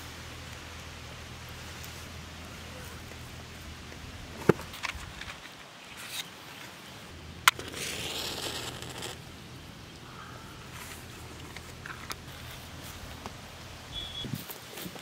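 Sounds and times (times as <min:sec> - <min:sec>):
match struck flaring: 0:07.4 - 0:09.2.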